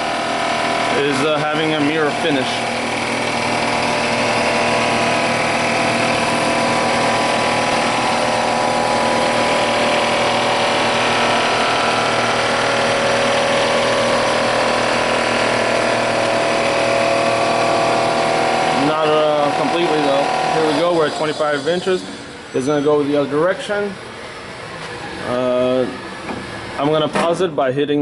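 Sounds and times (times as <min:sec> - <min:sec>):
surfacing machine cutting metal: 0:00.0 - 0:27.5.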